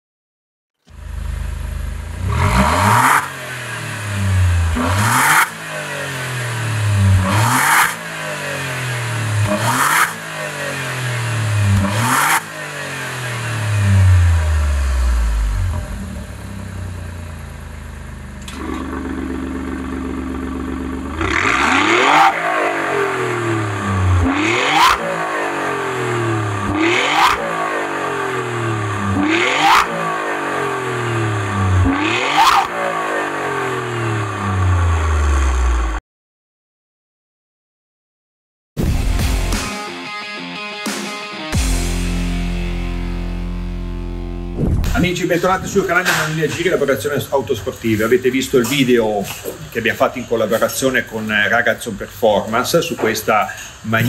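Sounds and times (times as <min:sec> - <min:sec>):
exhaust cracks: 0:00.9 - 0:33.1, 0:44.6 - 0:54.0
car engine revving: 0:00.9 - 0:36.0.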